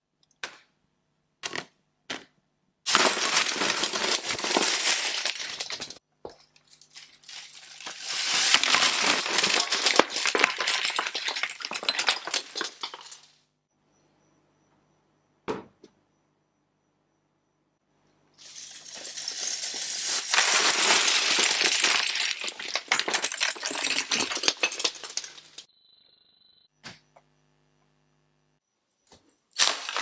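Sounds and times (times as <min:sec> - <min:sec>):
plastic bricks clattering: 0:02.9 - 0:06.0, 0:07.0 - 0:13.3, 0:18.4 - 0:25.7.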